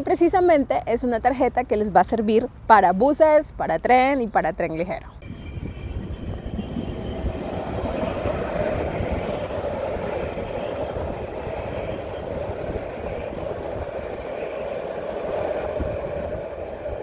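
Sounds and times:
tram hum: 0.0s - 17.0s
trams rolling rumble: 4.8s - 17.0s.

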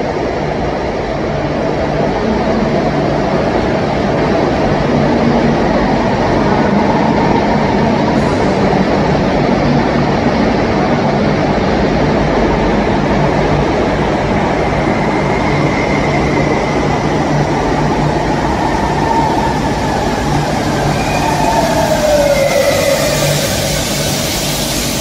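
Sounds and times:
train rumbling through station: 0.0s - 25.0s
falling whine: 14.7s - 25.0s.

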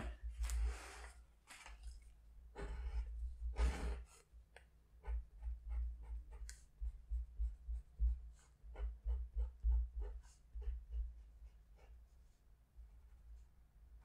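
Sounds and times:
scratchy drawing strokes: 5.0s - 12.4s
dull low thumps: 6.8s - 11.2s.

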